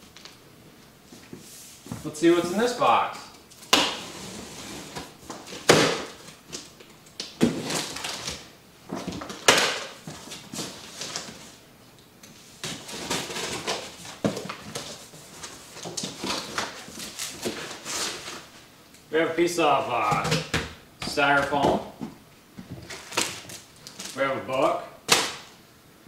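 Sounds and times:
cardboard scraping and rustling: 12.6 - 18.5.

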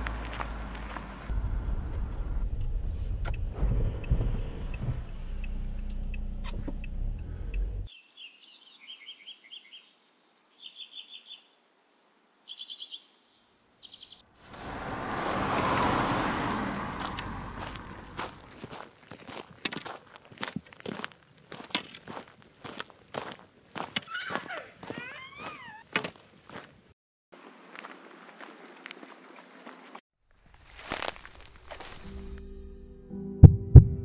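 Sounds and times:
car passing by: 0.0 - 6.8, 14.3 - 18.5
minibus engine rumble: 0.0 - 7.9, 14.4 - 18.6
small birds chirping: 7.9 - 11.6, 12.4 - 14.3, 24.0 - 25.9.

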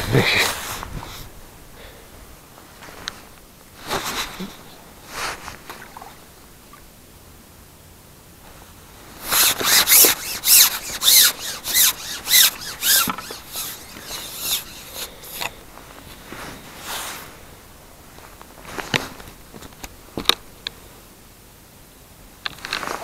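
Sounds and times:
fishing pole rubbing against clothing: 3.8 - 5.9, 9.2 - 17.5.

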